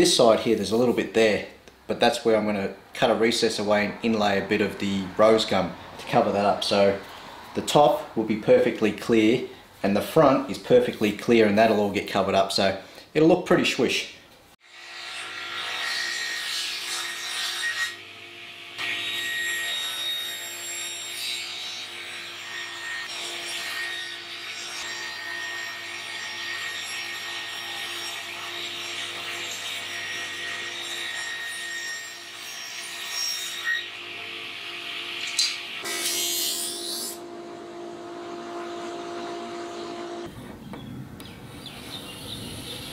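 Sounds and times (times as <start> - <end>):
table saw cutting wood: 14.6 - 40.3.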